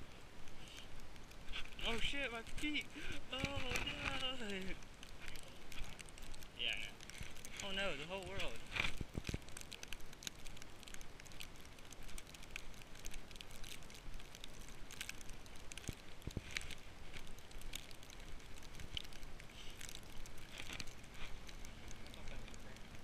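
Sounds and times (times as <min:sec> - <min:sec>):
steady low hiss: 0:00.0 - 0:23.0.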